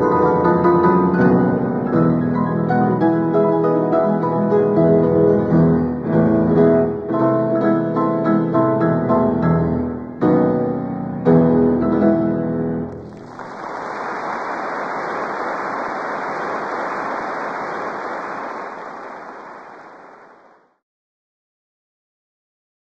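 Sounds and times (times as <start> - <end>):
piano and guitar music: 0.0 - 13.2.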